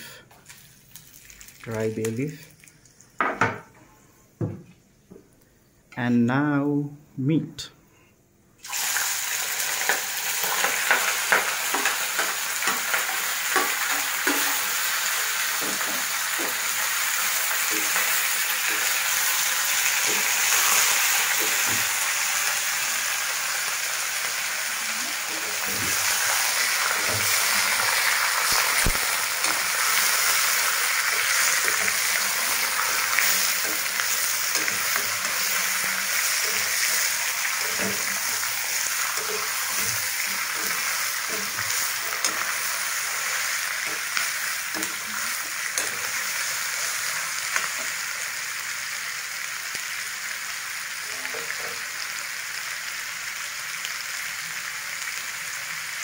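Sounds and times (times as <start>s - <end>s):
meat sizzling in hot oil: 0.0s - 2.8s, 8.6s - 56.0s.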